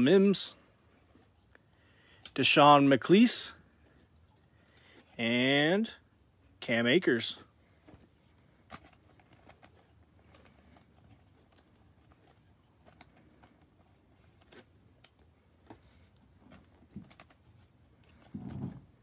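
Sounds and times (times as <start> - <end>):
cards clicking and rustling: 7.8 - 18.6.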